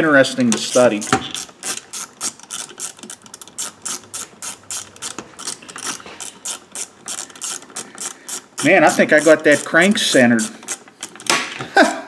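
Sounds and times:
ratcheting socket driver clicking: 0.5s - 11.6s.

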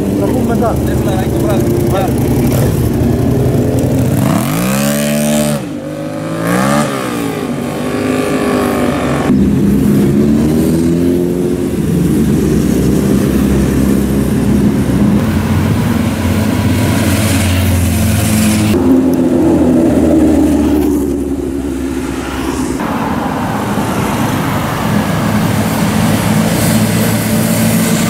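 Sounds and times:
motorcycle engine revving: 0.0s - 28.0s
motorcycles riding past: 0.0s - 28.0s.

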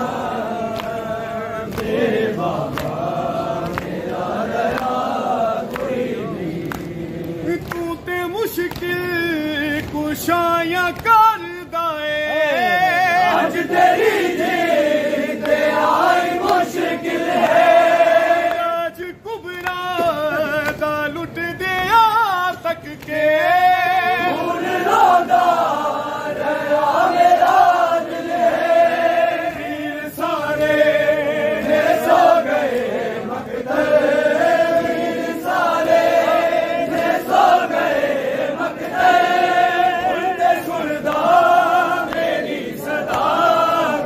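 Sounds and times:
crowd of men chanting a lament: 0.0s - 44.0s
man leading a sung lament: 4.9s - 15.2s, 17.3s - 28.0s.

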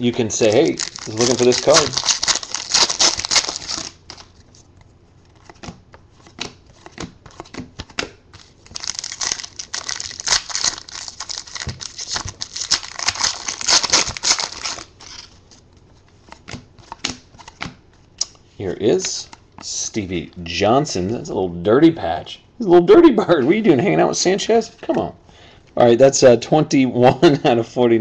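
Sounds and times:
foil wrappers crinkling and tearing: 0.4s - 4.4s, 8.4s - 15.4s
cards being flicked: 5.3s - 8.2s, 16.3s - 18.4s.

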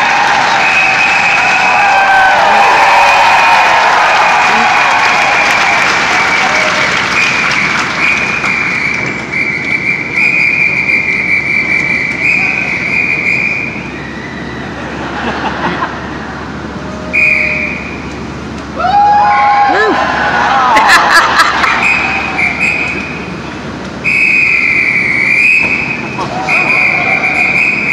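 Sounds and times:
audience applauding: 0.0s - 9.8s
long high whistle: 0.5s - 14.8s, 16.9s - 18.0s, 21.7s - 23.3s, 24.0s - 27.9s.

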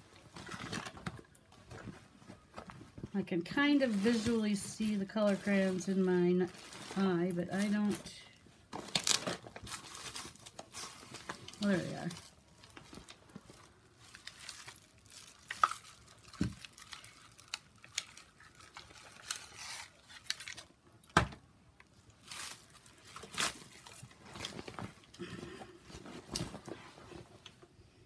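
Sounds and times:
crinkling and rustling: 0.0s - 27.8s
small objects clicking and knocking: 10.6s - 21.2s.

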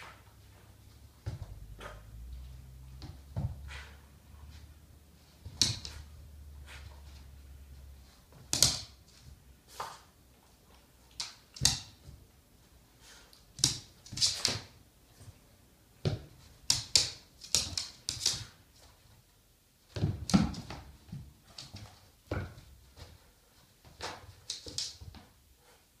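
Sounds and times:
dog claws tapping on floor: 5.4s - 6.1s, 8.3s - 10.1s, 11.0s - 12.2s, 13.5s - 14.8s, 16.0s - 19.0s, 23.8s - 25.3s.

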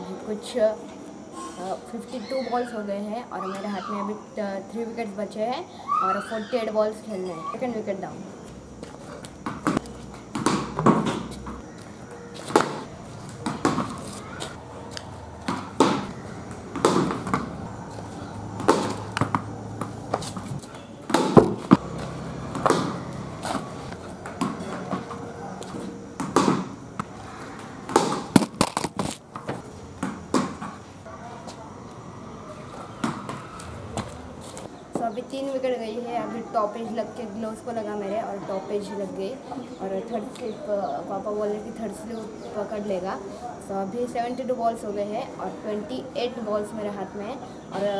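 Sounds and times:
ball bouncing on concrete: 8.8s - 30.9s, 33.0s - 35.1s
cricket bat striking ball: 9.4s - 11.7s, 12.4s - 17.8s, 18.5s - 27.2s, 27.8s - 30.9s, 33.0s - 34.0s.

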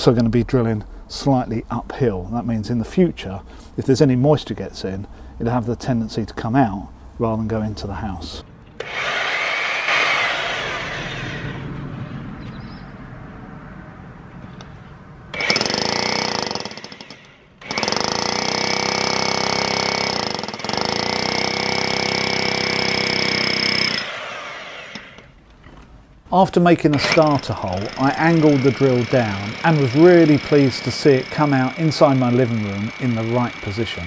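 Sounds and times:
drill winding down: 8.8s - 11.6s, 15.3s - 25.3s, 26.9s - 34.0s
rotary hammer drill: 8.8s - 11.6s, 15.3s - 25.3s, 26.9s - 34.0s.

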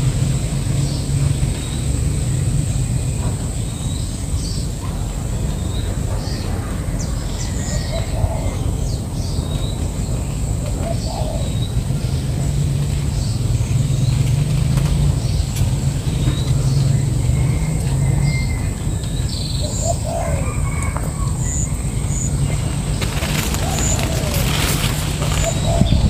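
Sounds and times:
small birds chirping: 0.0s - 26.0s
steady low rumble: 21.5s - 26.0s.

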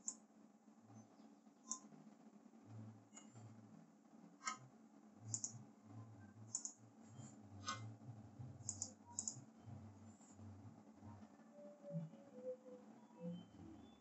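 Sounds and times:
low steady hum: 0.0s - 14.0s
computer keyboard clicks: 5.3s - 5.5s, 6.6s - 6.8s, 8.7s - 9.4s.

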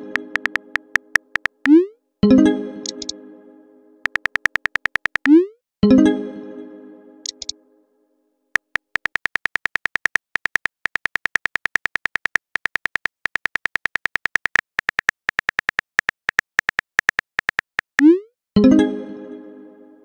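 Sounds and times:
phone keyboard key clicks: 0.1s - 1.8s, 2.9s - 3.1s, 4.1s - 5.3s, 7.3s - 7.5s, 8.6s - 18.0s.

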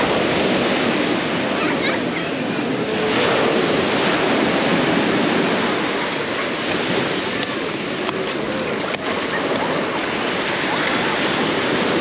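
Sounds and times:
faint voices: 0.0s - 12.0s
waves breaking on a beach: 0.0s - 12.0s.

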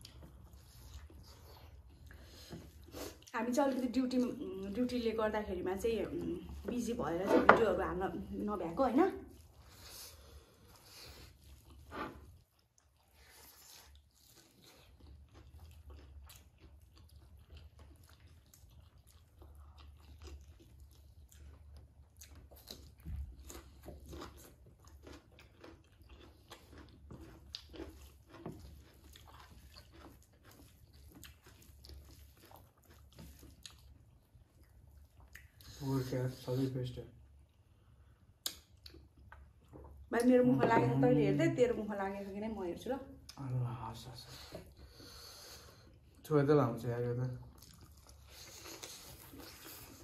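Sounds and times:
chewing and wet mouth sounds: 0.0s - 46.3s, 46.9s - 50.0s.

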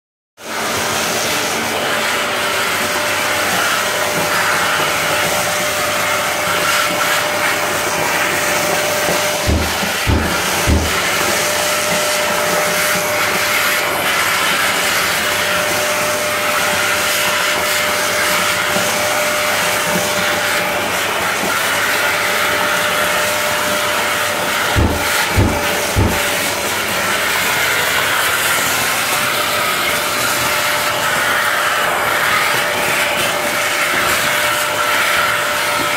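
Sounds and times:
vacuum extractor motor whine: 0.4s - 35.9s
low filter thumps: 24.8s - 26.3s.

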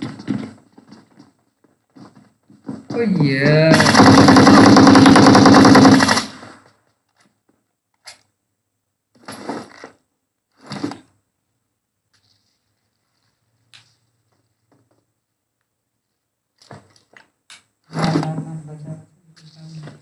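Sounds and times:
automatic gunfire: 3.4s - 6.6s.

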